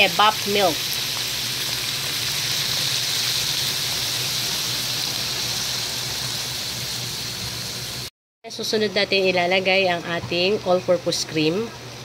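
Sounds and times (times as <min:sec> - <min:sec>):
milk sizzling in hot pan: 0:00.0 - 0:08.1.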